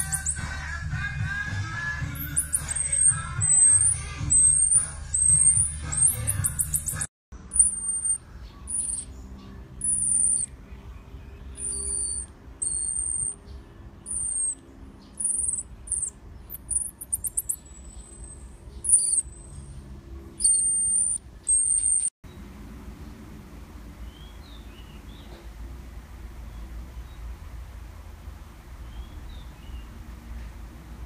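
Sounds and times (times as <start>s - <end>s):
marmoset whistling calls: 0.0s - 0.6s, 2.1s - 9.2s, 9.8s - 10.5s, 11.5s - 13.4s, 14.0s - 19.7s, 20.4s - 22.1s
marmoset chirping trill: 0.0s - 0.8s, 2.0s - 22.1s.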